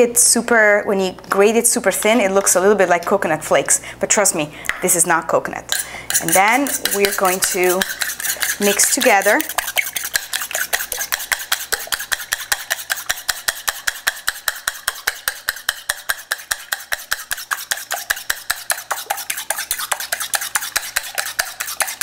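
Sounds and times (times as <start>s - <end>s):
whisk clicking in metal bowl: 5.7s - 22.0s.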